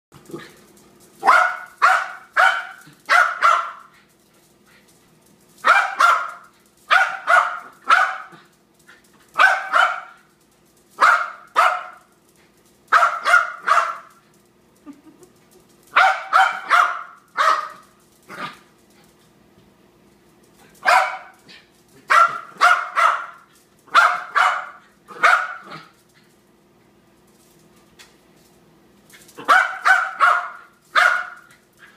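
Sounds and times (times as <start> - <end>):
dog barking sharply: 1.2 - 3.9, 5.6 - 8.3, 9.4 - 10.2, 12.9 - 14.1, 16.0 - 17.8, 20.8 - 21.3, 22.1 - 25.8, 29.4 - 31.5.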